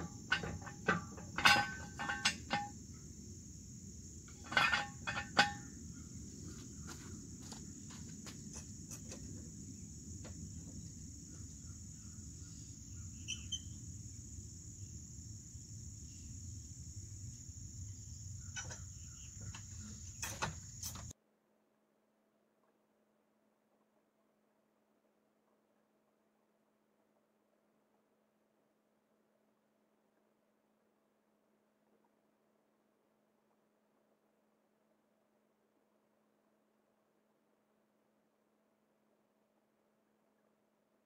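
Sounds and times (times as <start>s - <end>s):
metal clanks of jacks: 0.0s - 2.8s, 4.3s - 5.7s, 18.6s - 21.1s
insects droning: 0.0s - 21.1s.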